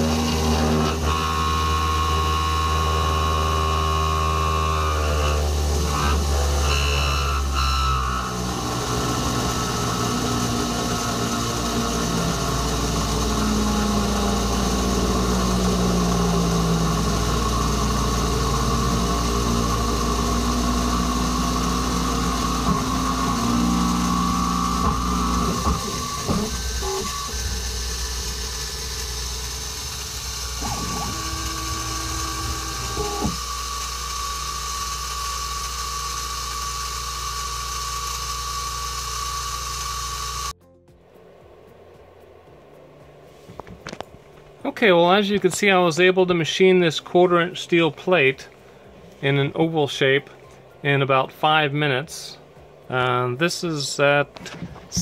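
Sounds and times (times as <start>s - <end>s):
milling machine cutting steel: 0.0s - 40.6s, 54.3s - 55.0s
stepper motors whining: 0.0s - 40.6s, 54.0s - 55.0s.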